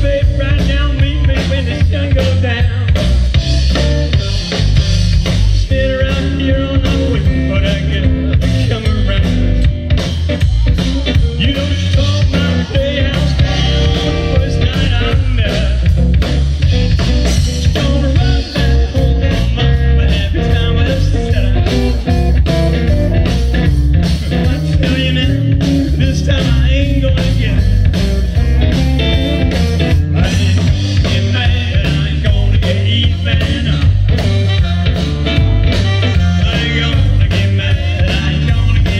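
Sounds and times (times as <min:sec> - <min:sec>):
blues band playing: 0:00.0 - 0:38.9
saxophone playing lead: 0:12.1 - 0:15.1, 0:34.3 - 0:37.1.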